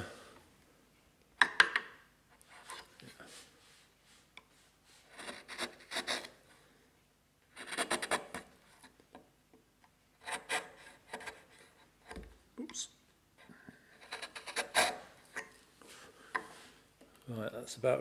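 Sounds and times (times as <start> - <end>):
chisel scraping wood: 2.4 - 2.9, 5.0 - 6.4, 7.6 - 8.9, 10.2 - 12.3, 13.9 - 15.6.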